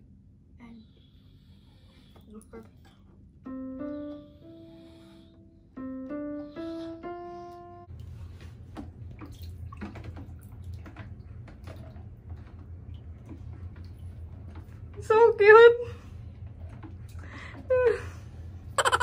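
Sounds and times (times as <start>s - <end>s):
steady low hum: 0.0s - 19.0s
electronic keyboard notes: 3.4s - 7.9s
water sloshing in plastic basin: 7.9s - 15.4s.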